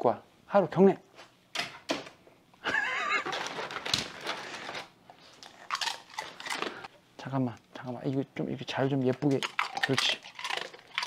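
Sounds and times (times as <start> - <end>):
dog treat crinkling and crunching: 3.0 - 6.9, 8.9 - 11.0.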